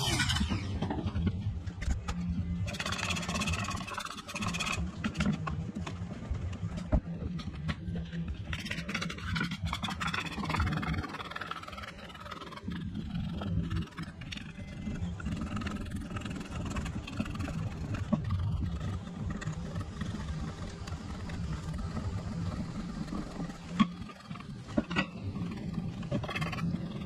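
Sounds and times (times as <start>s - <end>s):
motor humming: 0.0s - 1.5s.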